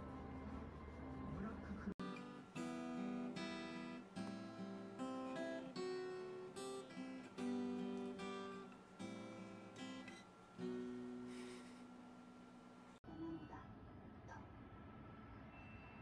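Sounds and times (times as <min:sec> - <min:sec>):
acoustic guitar melody: 0:02.0 - 0:12.6.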